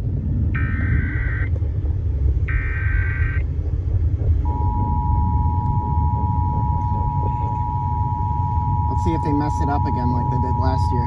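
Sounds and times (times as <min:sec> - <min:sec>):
low car rumble: 0:00.0 - 0:11.0
screechy digital data bursts: 0:04.8 - 0:11.0.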